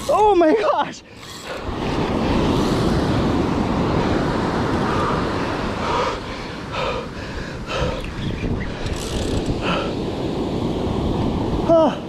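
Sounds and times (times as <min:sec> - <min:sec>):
surf washing on beach: 0:00.0 - 0:12.0
wind buffeting microphone: 0:00.0 - 0:12.0.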